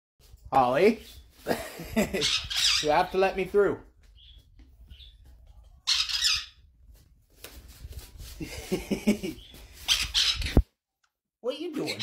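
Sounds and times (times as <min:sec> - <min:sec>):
parrot chirping and squawking: 0:02.1 - 0:03.4, 0:05.8 - 0:06.7, 0:09.4 - 0:10.6, 0:11.8 - 0:12.0
parrot screeching: 0:02.2 - 0:03.1, 0:05.8 - 0:06.6, 0:09.8 - 0:10.6.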